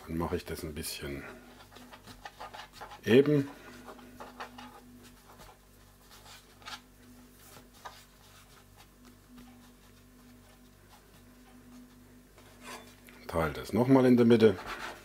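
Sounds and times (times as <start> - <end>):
low steady hum: 0.0 - 15.0
hands rubbing and tapping dough: 1.5 - 12.4.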